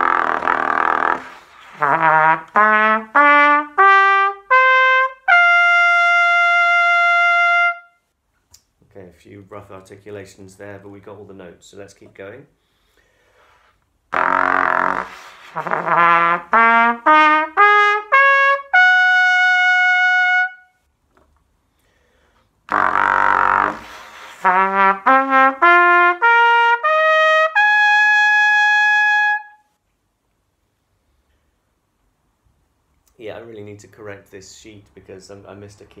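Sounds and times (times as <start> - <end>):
trumpet playing: 0.0 - 8.1, 14.1 - 20.8, 22.7 - 29.7.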